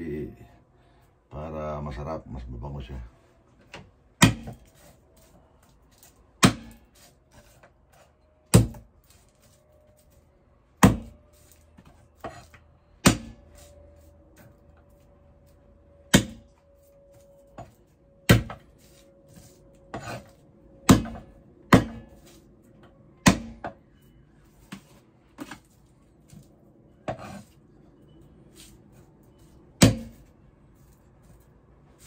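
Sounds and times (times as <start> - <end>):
cleaver chopping on wooden board: 4.2 - 4.7, 6.4 - 6.8, 8.5 - 8.9, 10.8 - 11.2, 12.2 - 13.4, 16.1 - 16.5, 18.3 - 18.6, 20.9 - 22.2, 23.2 - 23.8, 29.8 - 30.2.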